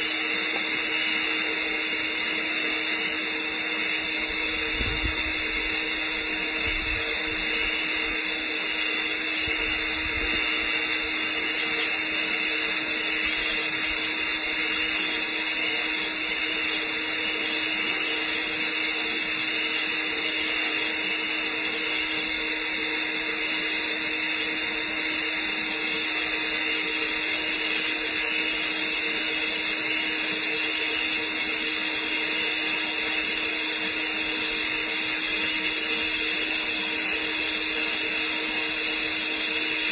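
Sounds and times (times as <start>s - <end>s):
welding arc hissing: 0.0s - 39.9s.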